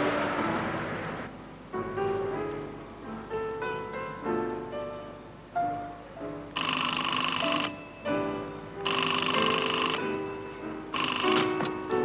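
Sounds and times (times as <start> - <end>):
background music: 0.0 - 12.0
payphone ringing: 6.6 - 12.0.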